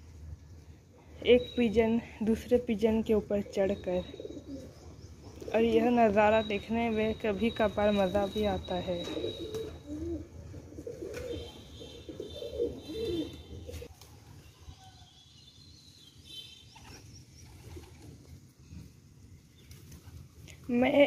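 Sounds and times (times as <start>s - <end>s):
pigeons cooing: 3.5s - 5.6s, 9.0s - 13.9s.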